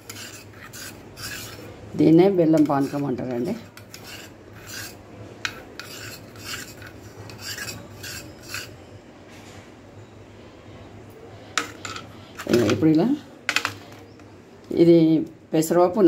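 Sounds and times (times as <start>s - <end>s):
spoon scraping metal bowl: 0.0s - 8.9s, 11.6s - 12.9s.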